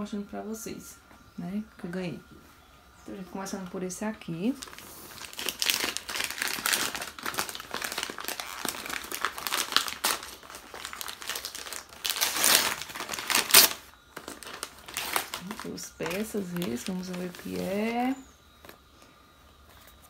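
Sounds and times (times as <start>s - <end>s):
wrapping paper crinkling and tearing: 4.5s - 18.8s.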